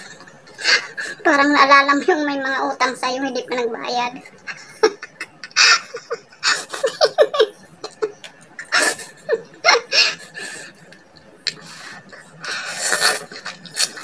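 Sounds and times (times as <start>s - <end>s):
woman laughing: 4.2s - 10.4s.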